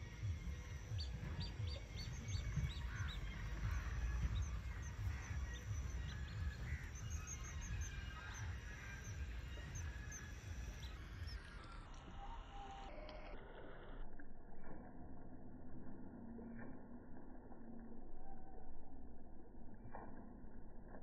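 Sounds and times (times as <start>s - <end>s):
wind rumble on microphone: 0.0s - 11.4s
birds chirping and calling: 0.0s - 12.9s.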